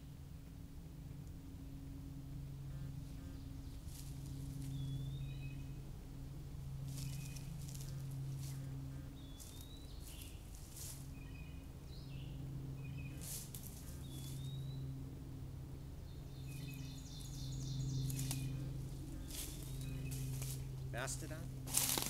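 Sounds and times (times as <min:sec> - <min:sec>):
steady low hum: 0:00.0 - 0:22.0
songbirds chirping: 0:01.0 - 0:22.0
footsteps crunching through dry leaves: 0:03.8 - 0:05.3, 0:06.8 - 0:11.5, 0:13.0 - 0:14.6, 0:16.5 - 0:22.0.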